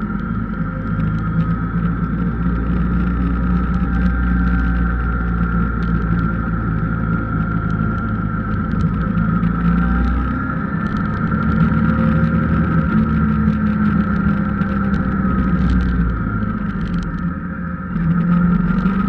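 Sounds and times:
car engine and road drone: 0.0 - 19.0
high-pitched whine: 0.0 - 19.0.

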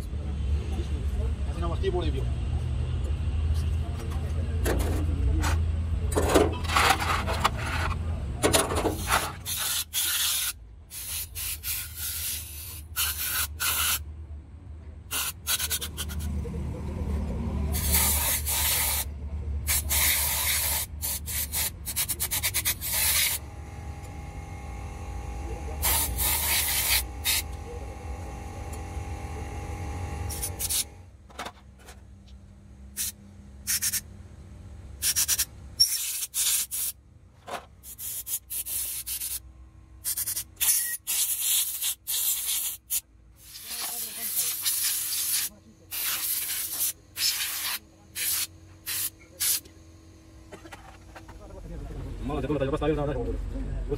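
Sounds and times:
low steady hum: 23.0 - 35.0
spray gun hissing: 25.8 - 27.4.

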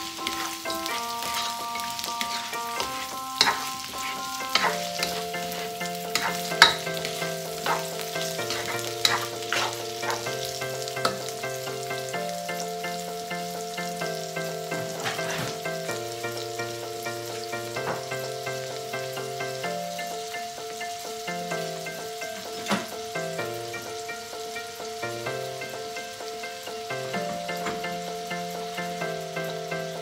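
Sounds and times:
spatula scraping a pan: 0.0 - 10.3, 14.8 - 15.7
food sizzling in a wok: 0.0 - 30.0.

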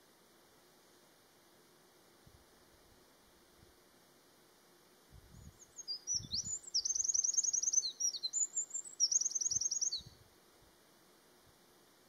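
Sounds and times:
wren singing warbles and trills: 5.3 - 10.2.

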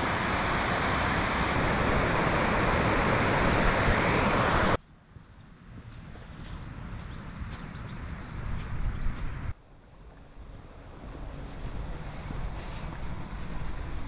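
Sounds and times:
river water rushing over rapids: 0.0 - 4.8
open-air background: 0.0 - 14.0.

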